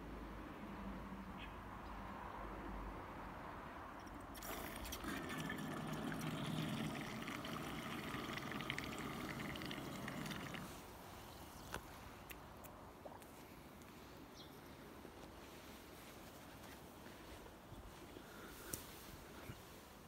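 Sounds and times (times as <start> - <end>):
water churning and splashing: 4.0 - 10.9.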